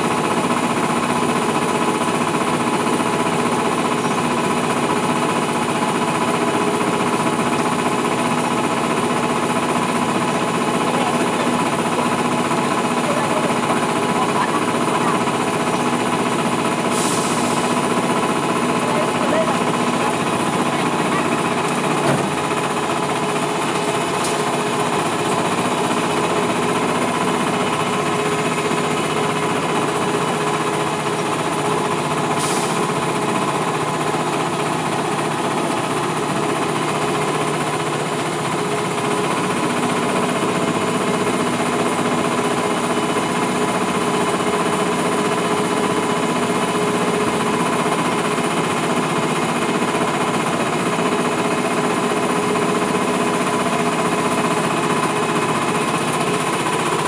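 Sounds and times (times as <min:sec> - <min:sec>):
boat motor running: 0:00.0 - 0:57.0.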